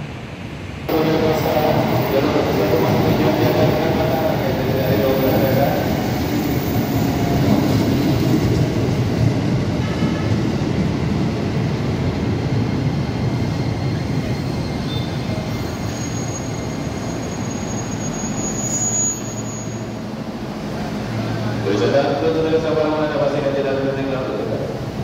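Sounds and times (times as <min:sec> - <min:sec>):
train wheels rumbling on rail: 0:00.2 - 0:25.0
high brake squeal: 0:13.6 - 0:20.1.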